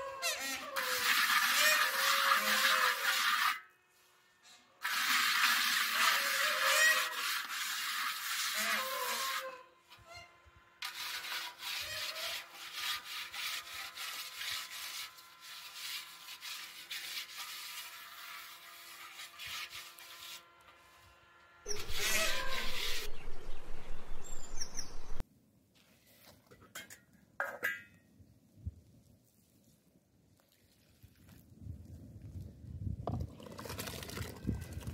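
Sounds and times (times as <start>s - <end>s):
hands scraping damp earth: 21.7s - 24.9s.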